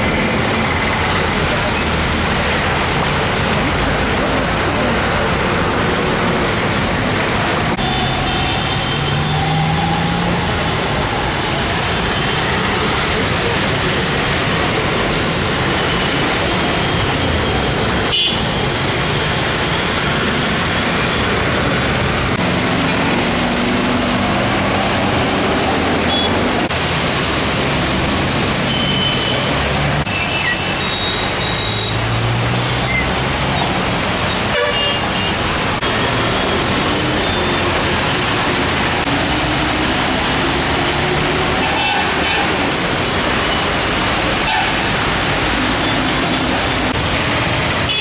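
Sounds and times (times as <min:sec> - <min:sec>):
rushing floodwater and traffic: 0:00.0 - 0:48.0
vehicle horn toots: 0:07.8 - 0:09.3.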